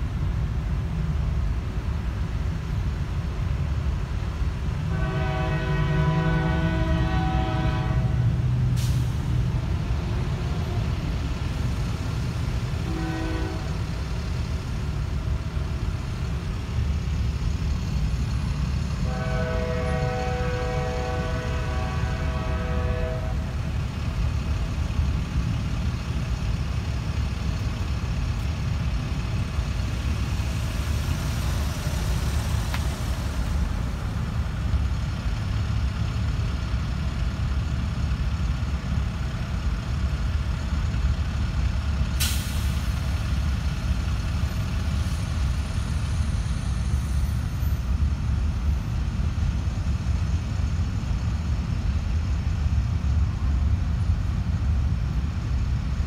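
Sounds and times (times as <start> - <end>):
freight train cars rumbling: 0.0 - 56.0
locomotive horn: 4.9 - 8.5, 12.8 - 13.9, 19.0 - 23.6.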